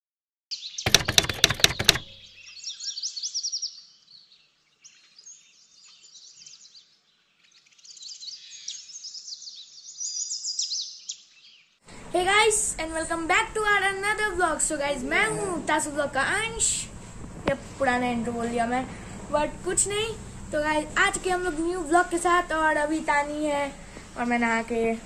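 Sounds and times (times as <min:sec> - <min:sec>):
small birds chirping: 0:00.5 - 0:12.1
rapid sharp clicks: 0:00.9 - 0:02.1.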